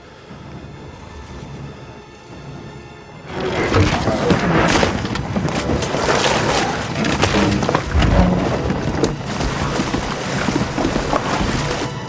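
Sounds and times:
clashes and crashes: 3.3 - 12.0
crumbling stone debris: 3.3 - 12.0.

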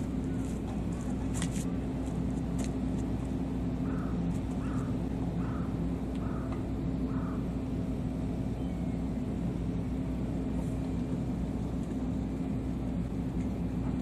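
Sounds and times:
low engine drone: 0.0 - 14.0.

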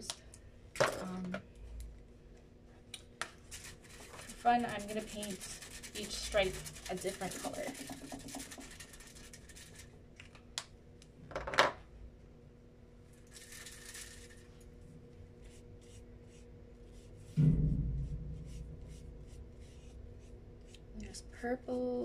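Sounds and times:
brush rubbing on crumpled foil: 3.5 - 9.9, 13.3 - 14.6
sharp foil crinkle: 13.3 - 14.6
dull thump: 17.2 - 19.2.

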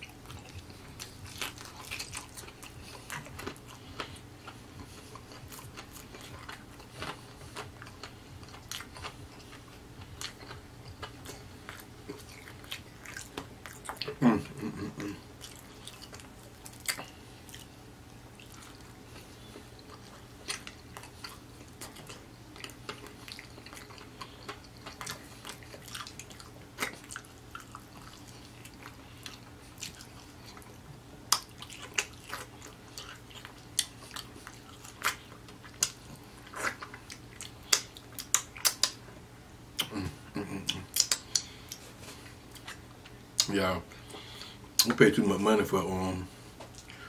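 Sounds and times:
chewing and wet mouth clicks: 18.3 - 39.0, 40.6 - 41.9.

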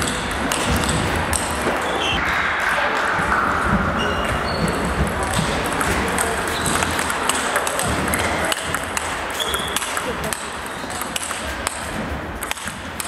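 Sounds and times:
table tennis ball clicking: 0.0 - 1.7, 4.7 - 13.0
distant table tennis ball clicks: 4.7 - 13.0.

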